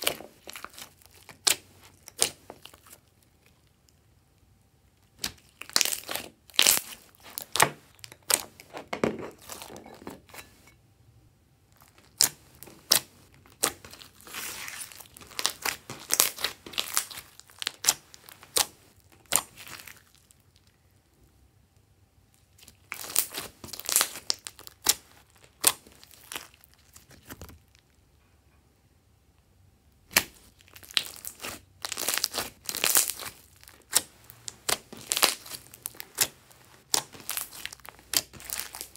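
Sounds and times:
slime crackling and popping: 0.0s - 4.0s, 5.0s - 8.8s, 11.8s - 20.8s, 22.4s - 27.9s, 30.0s - 38.9s.

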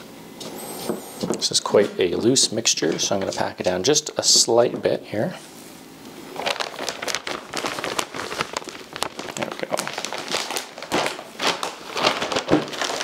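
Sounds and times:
plastic bag crinkling: 6.3s - 13.0s.

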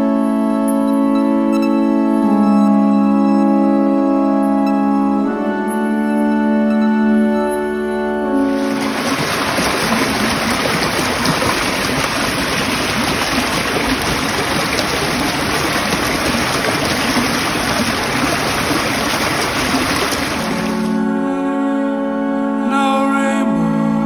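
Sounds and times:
stream flowing over rocks: 8.4s - 21.0s.

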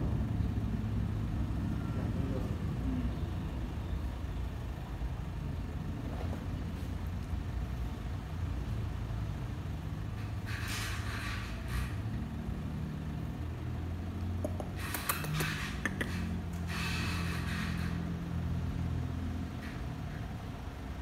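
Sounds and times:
sharp clicks: 14.4s - 16.3s.

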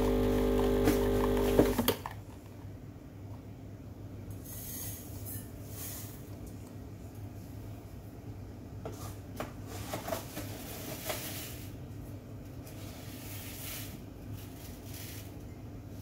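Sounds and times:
espresso machine pump humming: 0.0s - 1.8s.

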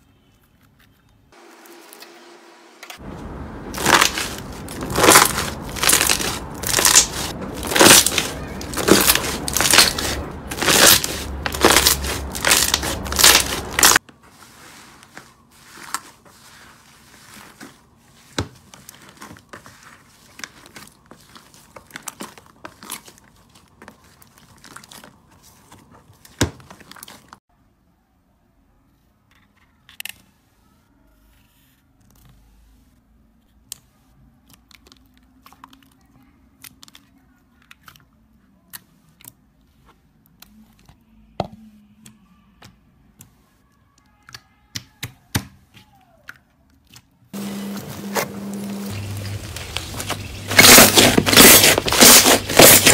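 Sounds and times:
slime squelching: 3.0s - 27.4s, 46.8s - 52.9s
slime crackling: 3.1s - 14.0s, 14.7s - 27.4s, 47.4s - 52.9s.

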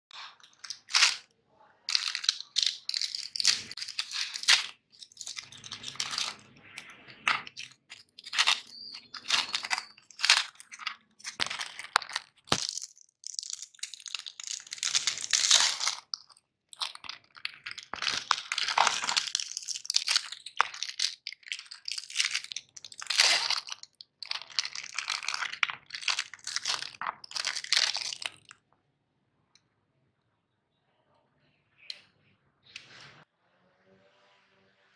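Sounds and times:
plastic wrappers crinkling and tearing: 0.1s - 1.3s, 1.9s - 28.6s.

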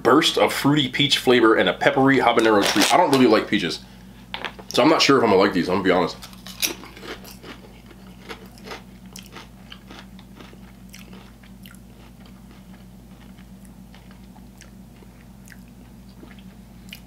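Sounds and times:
potato chips crunching: 2.3s - 3.5s, 6.0s - 17.0s.

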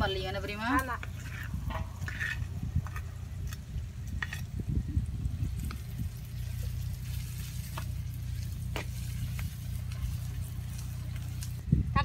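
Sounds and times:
steady low hum: 0.0s - 12.0s
metal spatula scraping a pan: 0.6s - 3.1s.

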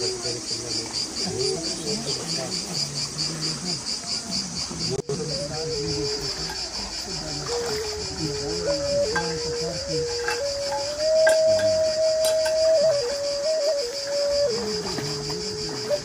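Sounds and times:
insects chirping in pulses: 0.0s - 16.0s
soft music: 5.2s - 16.0s.

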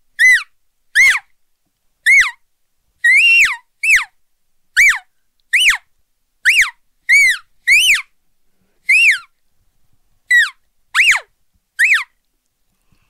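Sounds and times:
high-pitched elk calf calls: 10.3s - 12.2s.

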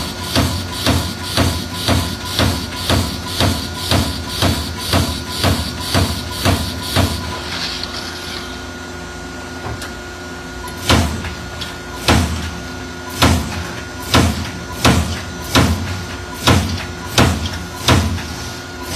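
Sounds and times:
sharp punch strikes on metal: 10.8s - 11.3s, 12.0s - 12.5s, 13.1s - 13.5s, 14.1s - 18.2s.

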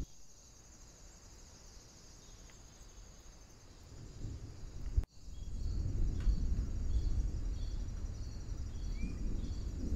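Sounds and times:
insects droning: 0.0s - 9.9s
low rumbling noise: 4.0s - 9.9s.

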